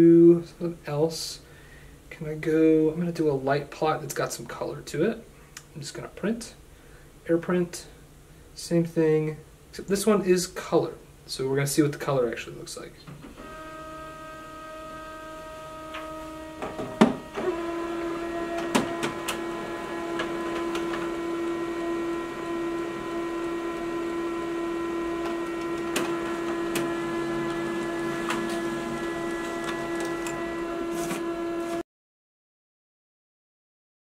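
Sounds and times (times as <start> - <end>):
printer motor hum: 13.3 - 31.8
printer picking up paper clunks: 15.9 - 17.5, 18.6 - 19.4, 25.2 - 31.3
printer clicks: 18.5 - 21.2, 25.2 - 31.2.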